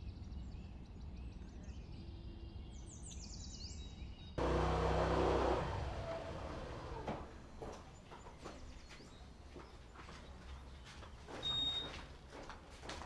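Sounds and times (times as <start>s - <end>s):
vehicle engine hum: 4.4s - 11.4s
birds chirping: 4.4s - 12.3s
low traffic rumble: 4.4s - 12.6s.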